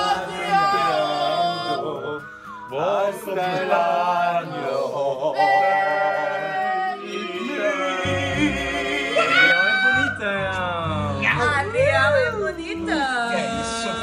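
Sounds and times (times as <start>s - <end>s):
group singing a cappella: 0.0s - 10.2s, 13.2s - 14.0s.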